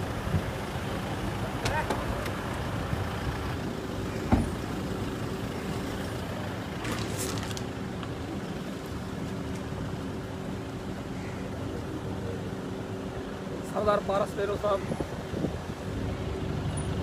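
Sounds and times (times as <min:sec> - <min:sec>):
engines idling: 0:00.0 - 0:17.0.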